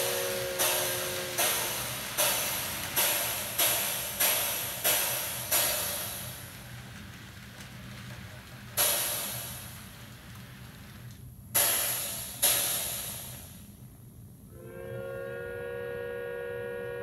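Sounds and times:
cymbal crashes: 0:00.0 - 0:05.9.

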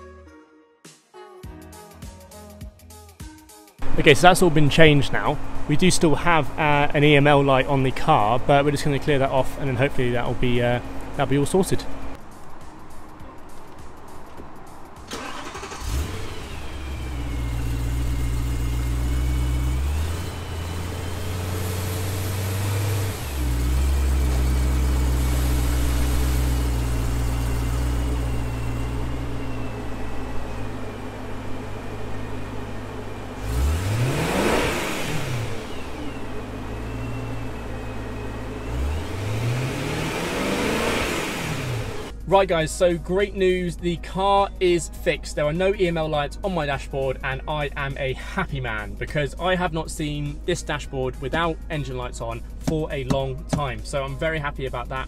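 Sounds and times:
car engine revving: 0:03.8 - 0:12.2, 0:14.8 - 0:42.2
car engine idling: 0:03.8 - 0:42.2
car engine starting: 0:03.8 - 0:44.5.

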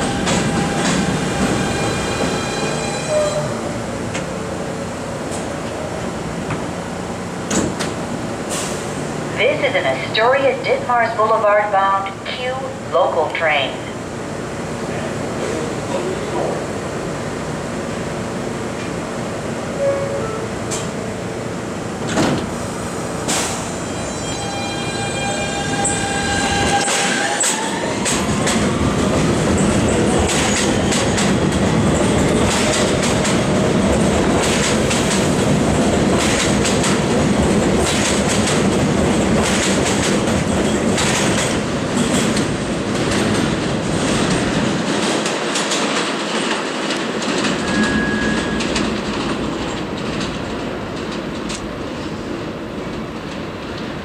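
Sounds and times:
train cars clickety-clack: 0:00.0 - 0:04.4, 0:07.4 - 0:09.0, 0:19.8 - 0:21.0, 0:22.0 - 0:54.0
subway train propulsion whine: 0:00.0 - 0:54.0
high wheel squeal: 0:47.5 - 0:48.8.

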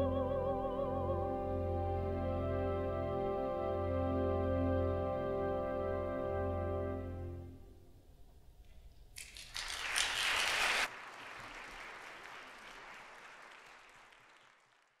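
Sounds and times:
music: 0:00.0 - 0:08.1
audience applauding: 0:09.2 - 0:15.0.

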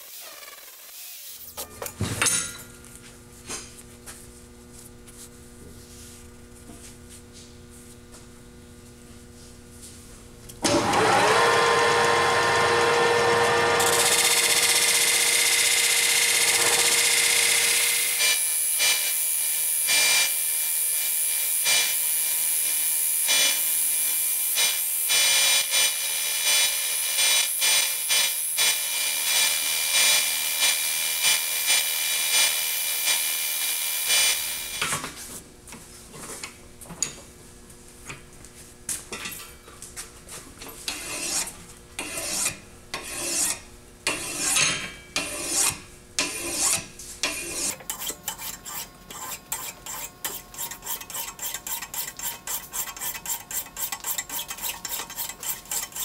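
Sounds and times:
hand file strokes on metal: 0:40.8 - 0:56.0.

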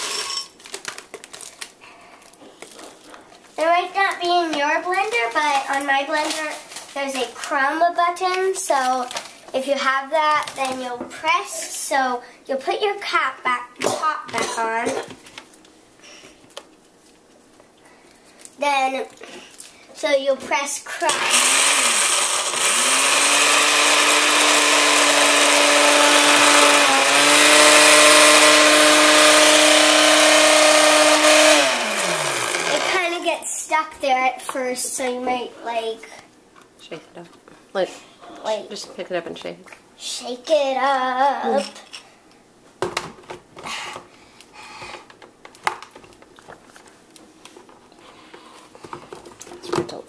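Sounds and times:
blender motor grinding: 0:00.0 - 0:00.5, 0:21.0 - 0:33.0.

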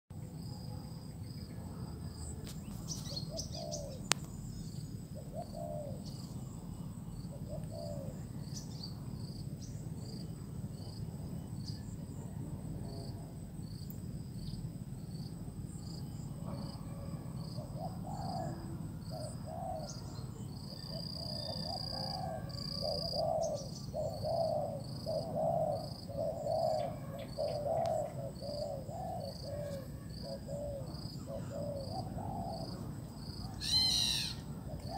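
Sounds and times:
insects trilling: 0:00.1 - 0:34.9
doves cooing: 0:02.7 - 0:09.2, 0:16.3 - 0:34.9.

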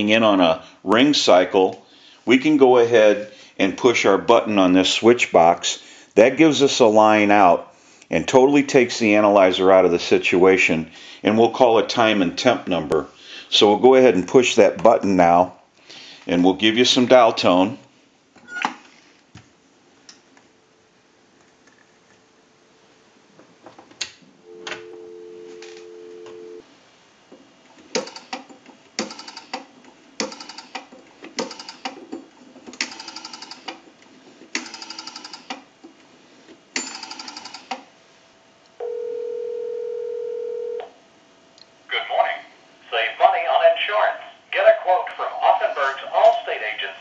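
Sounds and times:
telephone dial tone: 0:24.5 - 0:26.6, 0:32.9 - 0:33.6, 0:36.8 - 0:37.7, 0:38.8 - 0:40.9.

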